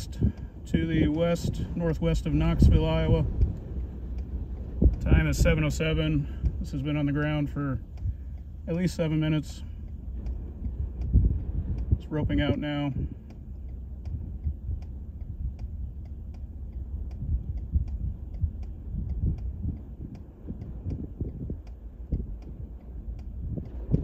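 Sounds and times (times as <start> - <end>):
mechanical ticking: 0.0 - 24.0
wind rumble on microphone: 0.0 - 24.0.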